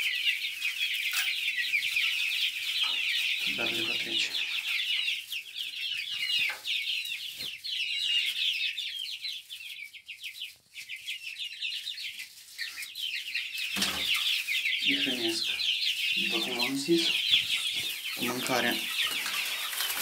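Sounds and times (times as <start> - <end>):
chicks peeping: 0.0 - 20.0.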